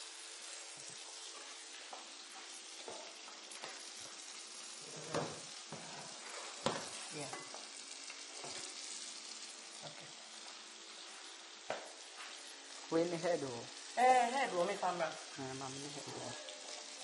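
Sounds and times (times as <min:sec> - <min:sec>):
food sizzling in frying pan: 0:00.0 - 0:17.0.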